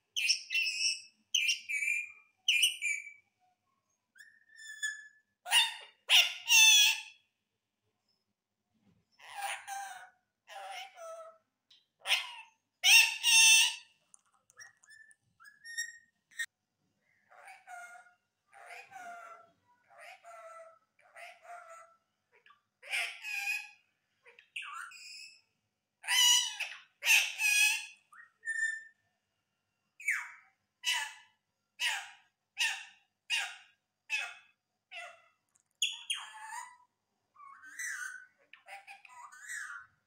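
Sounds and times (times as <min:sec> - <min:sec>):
parakeet talking: 0:04.2 - 0:07.1, 0:09.2 - 0:11.4, 0:12.0 - 0:13.8, 0:17.2 - 0:25.2, 0:26.0 - 0:28.9, 0:30.0 - 0:40.0.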